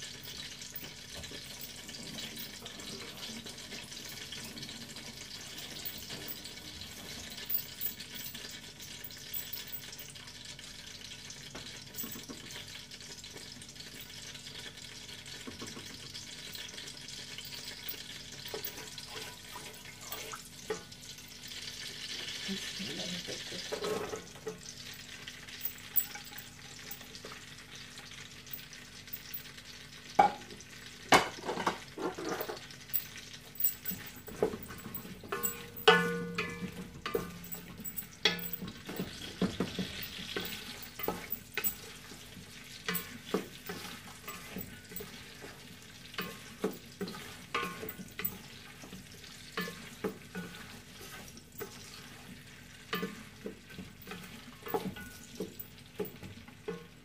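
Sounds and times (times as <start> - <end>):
onions sizzling in hot oil: 0.0 - 57.0
wooden spatula scraping pot: 18.4 - 20.9, 31.8 - 48.9, 49.6 - 55.6.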